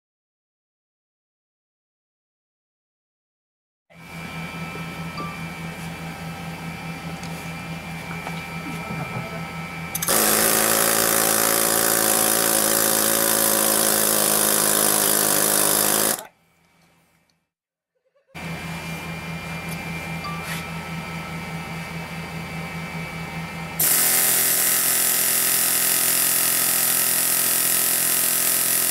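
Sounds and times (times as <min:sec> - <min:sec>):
loud air hammer hammering: 0:08.0 - 0:16.3, 0:23.2 - 0:28.9
air hammer rattling: 0:10.0 - 0:16.3.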